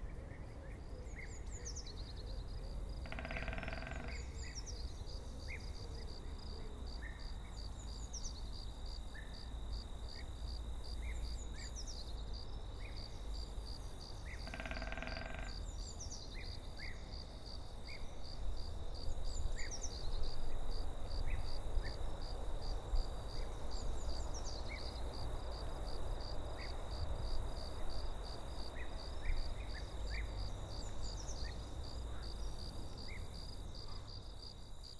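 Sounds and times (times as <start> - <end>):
insect trilling: 3.0 - 4.1, 14.4 - 15.6.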